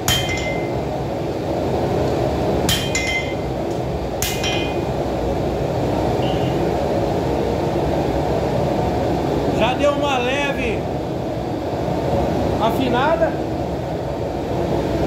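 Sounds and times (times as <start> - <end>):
hammer blows on anvil: 0.0 - 0.9, 2.6 - 3.6, 4.2 - 4.9.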